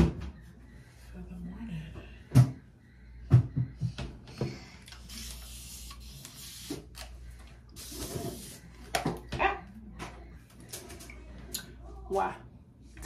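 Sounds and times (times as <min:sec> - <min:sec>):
spray bottle hissing: 0:05.0 - 0:07.0.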